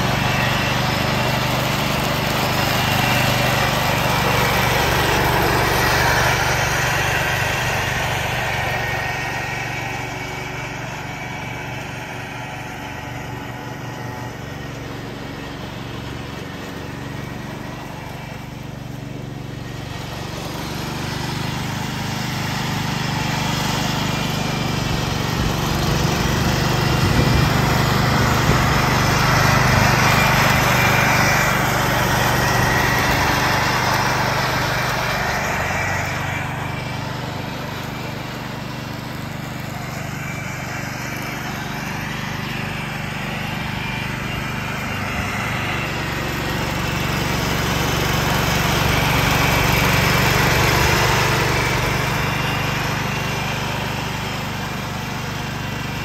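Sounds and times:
mower deck mulching leaves: 0:00.0 - 0:56.0
tractor engine running: 0:00.0 - 0:56.0.

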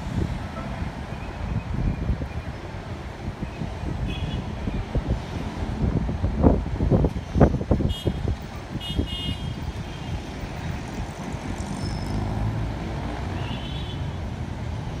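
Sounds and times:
wind buffeting microphone: 0:00.0 - 0:11.7
city traffic rumble: 0:00.0 - 0:15.0.

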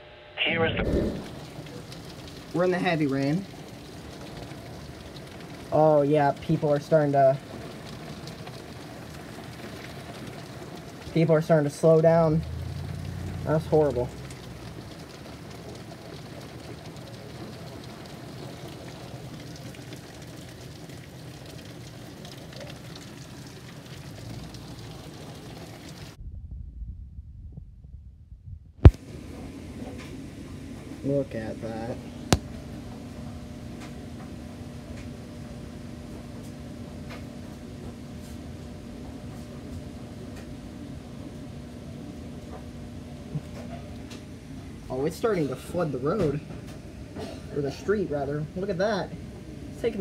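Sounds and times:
low hum: 0:00.0 - 0:05.7, 0:12.2 - 0:15.9, 0:25.9 - 0:47.5
heavy rain falling: 0:00.9 - 0:26.2, 0:28.8 - 0:50.0.

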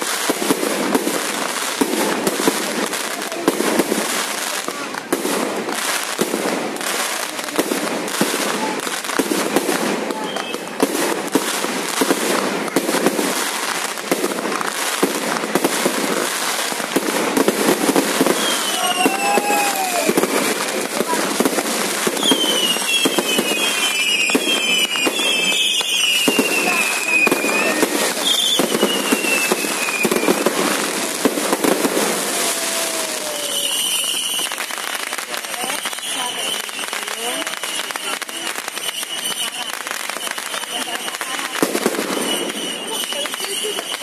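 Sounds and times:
fireworks bangs and pops: 0:00.0 - 0:44.0
fireworks crackle: 0:00.0 - 0:44.0.

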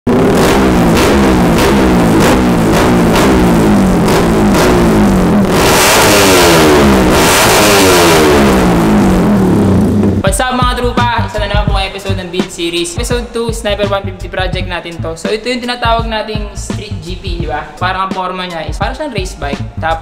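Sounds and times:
motorcycle engine revving: 0:00.1 - 0:10.2
music with steady beat: 0:00.1 - 0:20.0.

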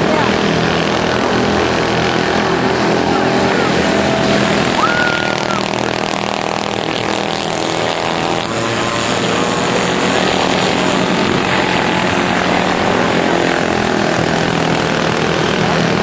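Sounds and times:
kart engines droning: 0:00.0 - 0:16.0.

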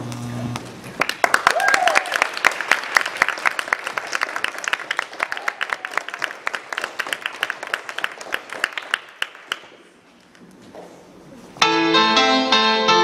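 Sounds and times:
audience applauding: 0:00.9 - 0:09.9.

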